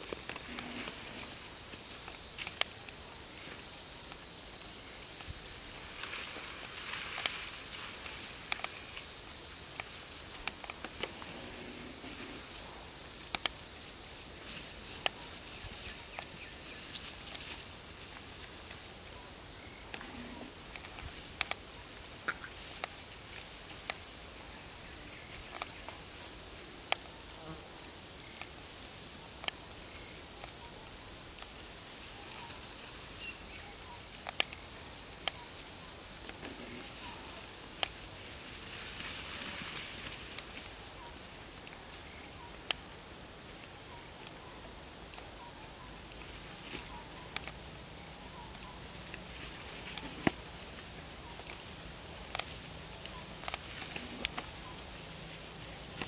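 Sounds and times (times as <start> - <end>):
twigs clicking and snapping: 0.0 - 4.2, 6.0 - 9.1, 13.1 - 13.9, 46.1 - 56.0
faint outdoor hiss: 0.0 - 56.0.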